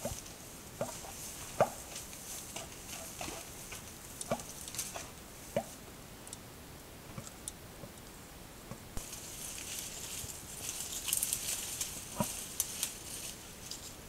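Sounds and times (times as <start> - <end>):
animal rustling through dry grass: 0.0 - 5.8, 9.0 - 14.0
microphone hiss: 0.0 - 14.0.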